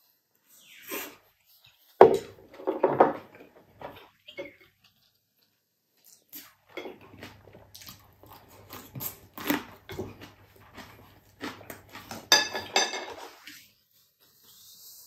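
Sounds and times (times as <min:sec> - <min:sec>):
chewing and lip-smacking: 0:04.7 - 0:12.8.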